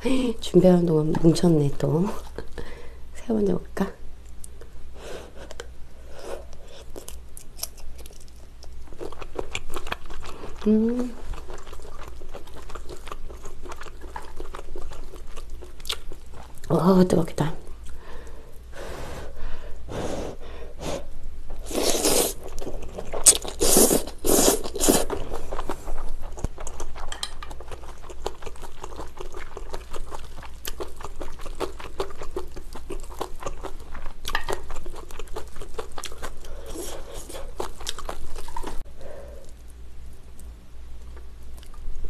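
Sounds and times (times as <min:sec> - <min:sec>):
wet chewing: 0:06.4 - 0:16.8, 0:21.6 - 0:39.7
person slurping noodles: 0:21.6 - 0:22.4, 0:23.5 - 0:25.1.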